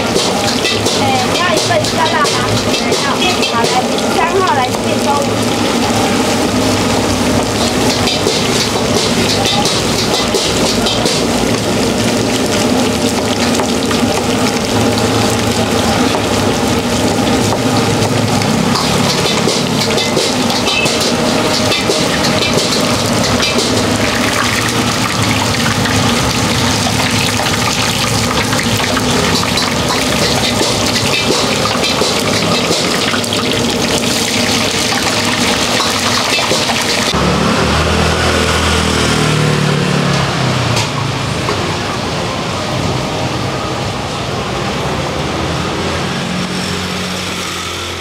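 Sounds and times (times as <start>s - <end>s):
tofu sizzling in hot oil: 0.0s - 37.2s
low rumble of street noise: 0.0s - 48.0s.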